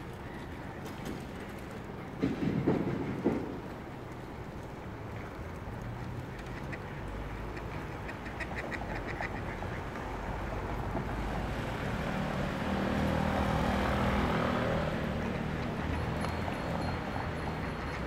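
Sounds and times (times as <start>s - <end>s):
city traffic noise: 0.0s - 18.0s
vehicle passing: 5.7s - 18.0s
ducks quacking: 6.5s - 10.0s.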